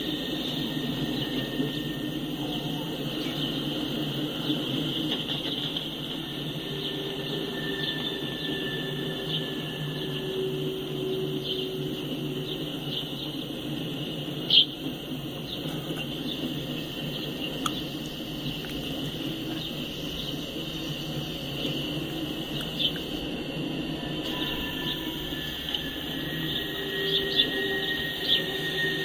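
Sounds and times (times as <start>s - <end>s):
high wheel squeals: 0.0s - 5.1s, 5.9s - 15.0s, 19.1s - 29.0s
train wheels rumbling on rails: 0.0s - 29.0s.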